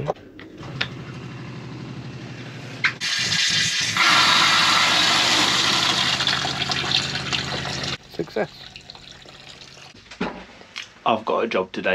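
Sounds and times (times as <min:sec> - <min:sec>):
water pump humming: 0:03.0 - 0:09.9
water gushing into a bucket: 0:03.0 - 0:10.0.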